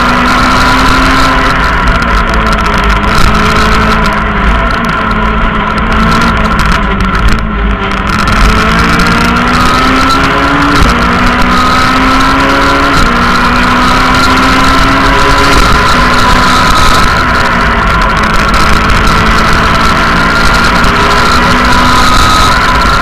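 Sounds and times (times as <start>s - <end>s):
rally car engine revving: 0.0s - 23.0s.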